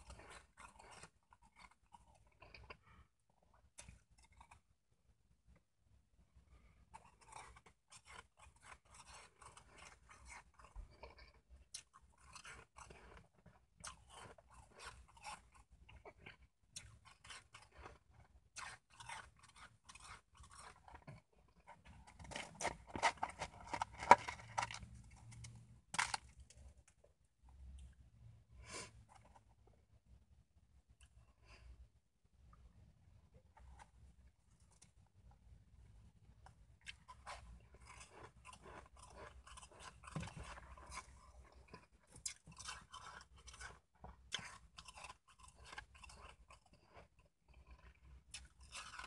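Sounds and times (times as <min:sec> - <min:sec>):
ice being chewed and crunched: 0:00.0 - 0:04.8, 0:06.6 - 0:27.9, 0:36.4 - 0:49.0.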